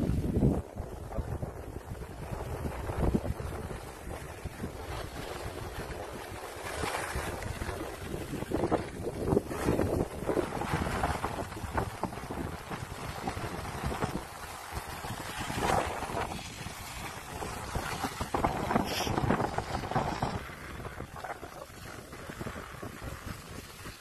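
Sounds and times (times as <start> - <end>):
wind buffeting microphone: 0.0 - 24.0
skis hissing over snow: 10.5 - 24.0.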